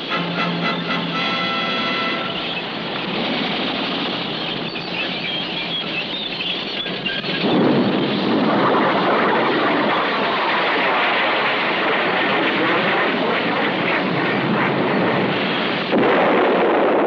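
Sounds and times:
tank engine noise: 0:00.0 - 0:17.0
tank tracks squealing and clattering: 0:00.6 - 0:07.5.

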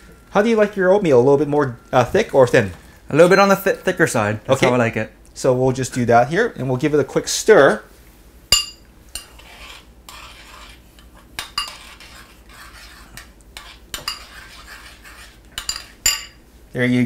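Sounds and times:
spoon clinking against bowl: 0:08.6 - 0:09.4, 0:15.6 - 0:16.4
spoon scraping a bowl: 0:09.1 - 0:16.4.

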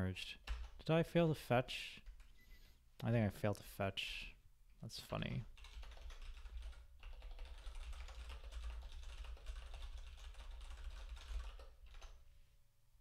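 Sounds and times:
typing on keyboard: 0:00.4 - 0:00.8, 0:05.6 - 0:12.2.

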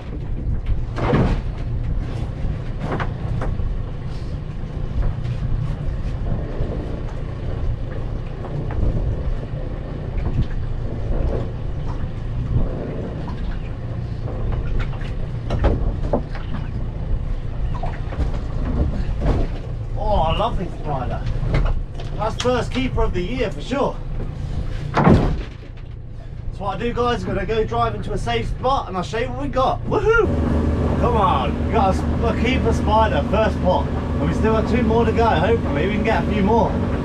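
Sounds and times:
wind rumbling on microphone: 0:00.0 - 0:28.8.

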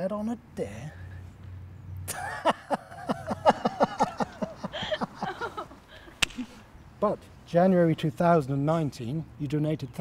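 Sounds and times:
person laughing: 0:02.1 - 0:06.3
high five slap: 0:06.2 - 0:06.5.

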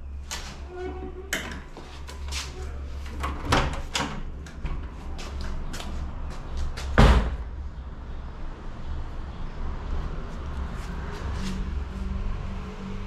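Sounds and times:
metal door clicking and rattling: 0:03.1 - 0:04.8
metal door bang: 0:07.0 - 0:07.5.

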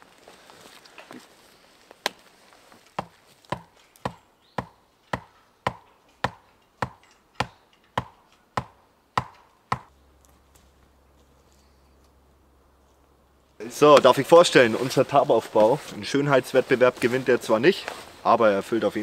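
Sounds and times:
wooden stake being hammered: 0:03.0 - 0:09.9.

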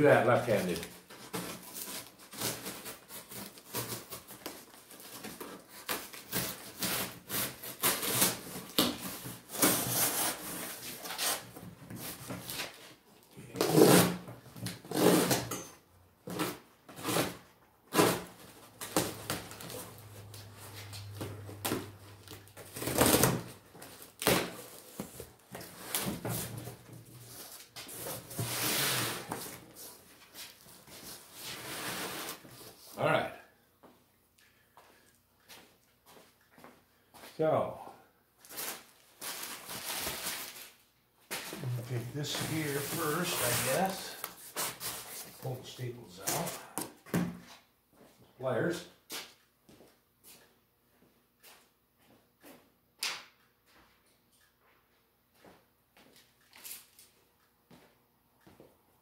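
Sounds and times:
cardboard and tape ripping: 0:00.3 - 0:12.8, 0:13.5 - 0:15.5, 0:16.3 - 0:26.7, 0:41.4 - 0:45.6.

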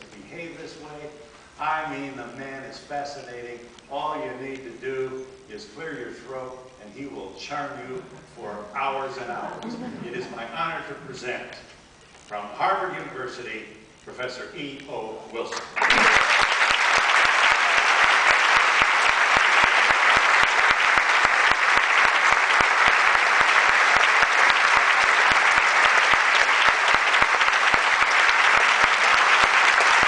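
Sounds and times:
audience applauding: 0:15.5 - 0:30.0.

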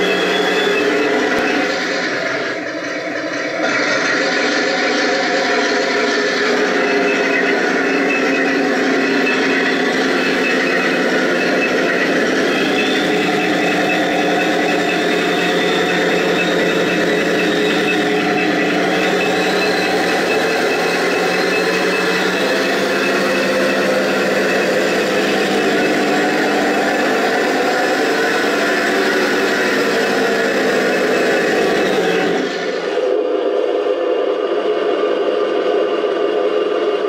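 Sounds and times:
simulated tank engine: 0:00.0 - 0:37.0
thin high whine: 0:00.0 - 0:37.0.

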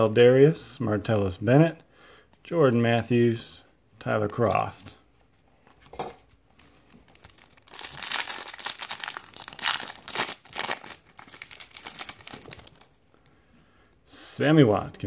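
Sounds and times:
foil wrapper crinkling and tearing: 0:07.0 - 0:13.0.

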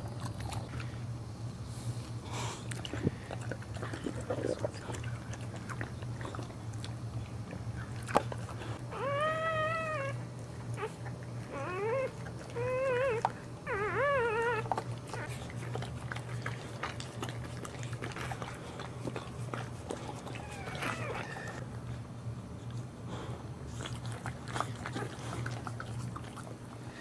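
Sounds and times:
wet licking and rustling: 0:02.1 - 0:08.8, 0:10.2 - 0:21.7, 0:23.7 - 0:27.0
puppy crying: 0:08.8 - 0:15.8, 0:20.1 - 0:21.6.

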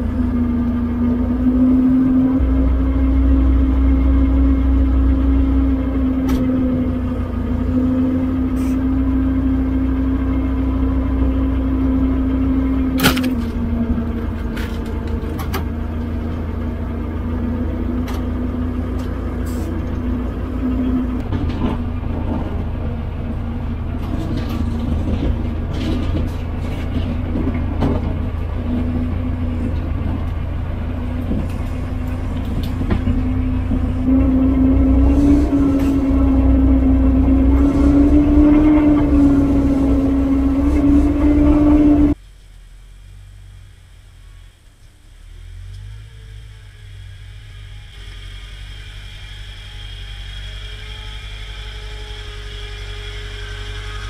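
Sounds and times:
grader engine rumbling under load: 0:00.0 - 0:54.0
knocks and rattles: 0:19.9 - 0:34.7.

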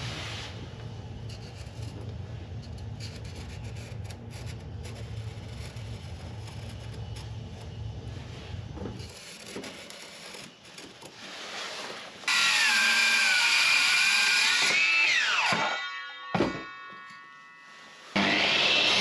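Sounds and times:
circular saw cutting: 0:11.4 - 0:19.0.

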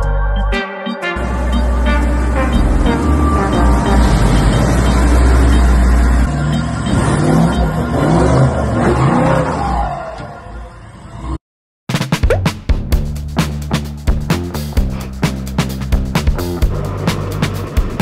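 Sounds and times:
background music: 0:00.0 - 0:08.4, 0:11.9 - 0:18.0
engine revving: 0:01.2 - 0:10.0.

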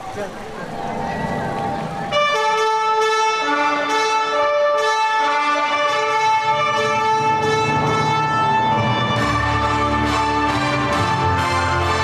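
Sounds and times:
slow string melody: 0:00.0 - 0:12.0.

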